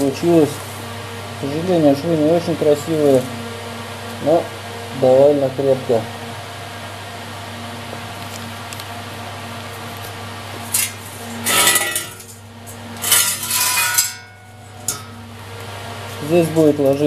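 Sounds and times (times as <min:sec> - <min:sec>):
steady low hum: 0:00.0 - 0:17.0
steel tubing clinking on concrete: 0:10.8 - 0:12.4, 0:13.0 - 0:15.1.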